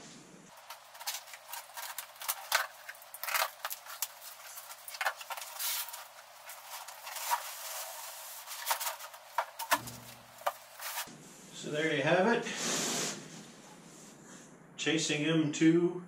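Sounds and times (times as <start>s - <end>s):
cardboard box scraping and knocking: 6.6s - 11.1s.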